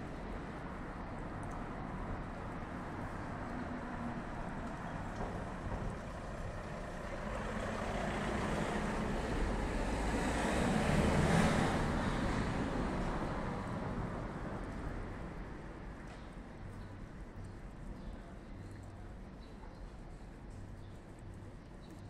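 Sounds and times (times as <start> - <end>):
road vehicle passing by: 2.8 - 15.4.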